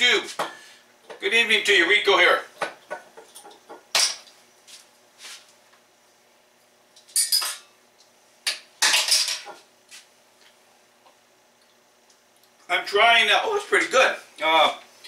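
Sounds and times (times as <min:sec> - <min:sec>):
faint steady hum: 0:00.0 - 0:15.0
kitchen items clattering: 0:08.8 - 0:09.6.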